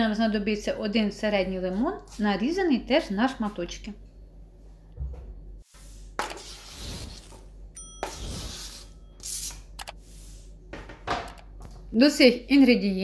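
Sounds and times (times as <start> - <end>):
clink against glass bowl: 7.8 - 8.2.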